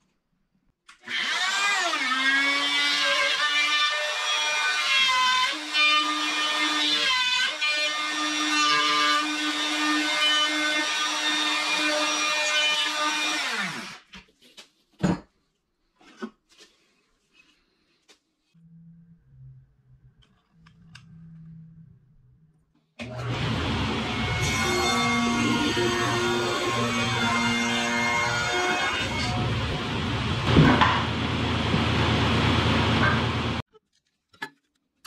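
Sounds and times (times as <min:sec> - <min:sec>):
router cutting wood: 0:01.0 - 0:14.0, 0:23.0 - 0:33.6.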